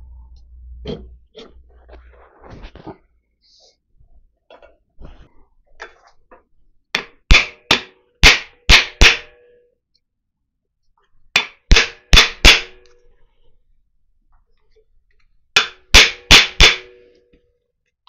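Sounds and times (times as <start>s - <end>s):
hammer striking wooden block: 6.9s - 9.4s, 11.3s - 12.9s, 15.6s - 17.2s.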